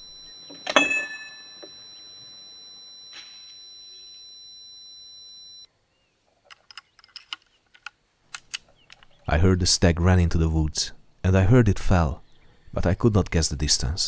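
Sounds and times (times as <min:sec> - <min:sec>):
faint high-pitched tone: 0:00.0 - 0:05.7
small metallic clicks: 0:06.4 - 0:09.3.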